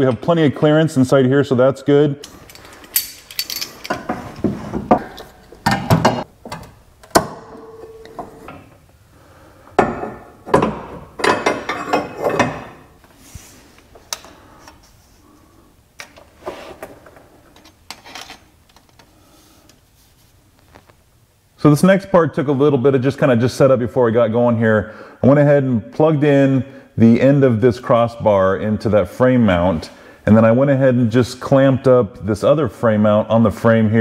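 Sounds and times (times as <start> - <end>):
metal knocks clinks and scraping: 2.2 - 8.7, 9.8 - 12.9, 17.5 - 19.0.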